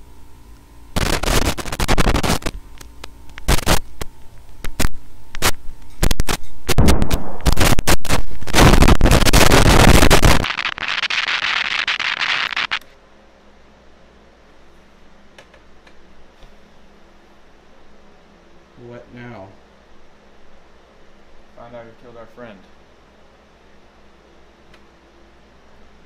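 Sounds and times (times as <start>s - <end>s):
static hiss: 0.0s - 13.0s
distorted noise with cracks: 0.9s - 13.0s.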